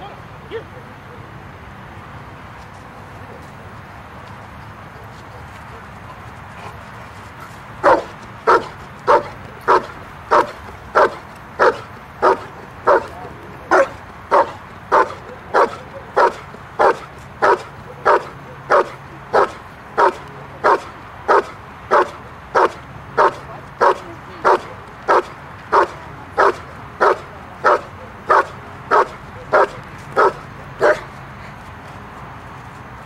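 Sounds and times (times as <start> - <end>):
dog barking: 7.8 - 31.1.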